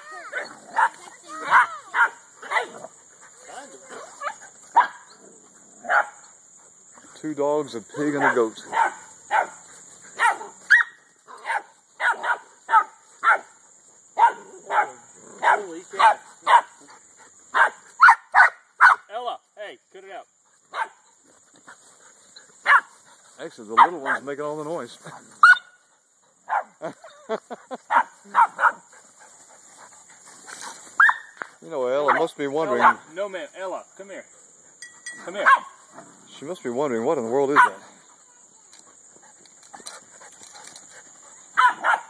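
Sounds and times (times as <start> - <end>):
puppy yapping: 0.0 - 2.8
puppy barking: 0.2 - 2.8, 4.2 - 5.1, 5.8 - 6.2, 8.2 - 9.6, 10.2 - 13.5, 14.2 - 16.8, 17.5 - 19.1, 20.7 - 21.0, 22.6 - 22.9, 25.4 - 25.8, 26.5 - 26.8, 27.9 - 28.8, 31.0 - 31.3, 32.1 - 33.0, 35.3 - 35.8, 37.5 - 37.8, 41.6 - 42.0.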